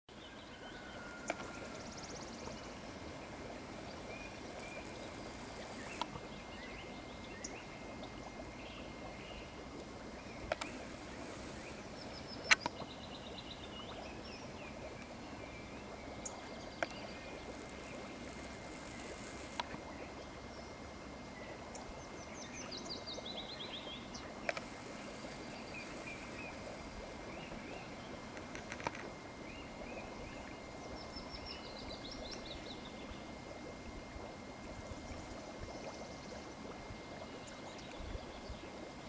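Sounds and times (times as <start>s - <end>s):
running water: 0.1s - 39.0s
sharp clicks: 12.4s - 12.8s.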